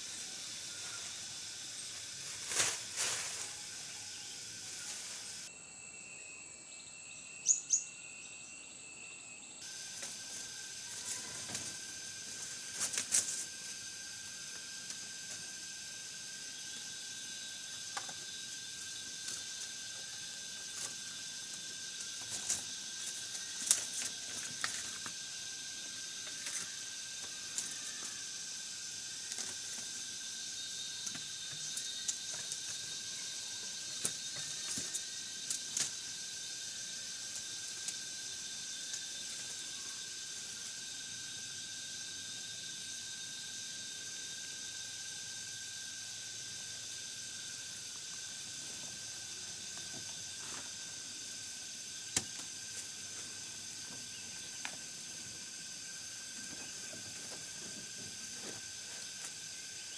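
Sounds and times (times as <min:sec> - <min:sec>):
insects buzzing: 0:00.0 - 0:59.9
knocks of bamboo and wood: 0:52.1 - 0:52.6.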